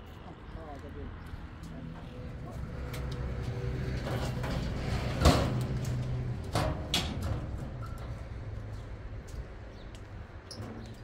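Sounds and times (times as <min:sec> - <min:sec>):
metal doors and frames handled: 0:03.8 - 0:08.5
metal clanks: 0:04.0 - 0:08.3.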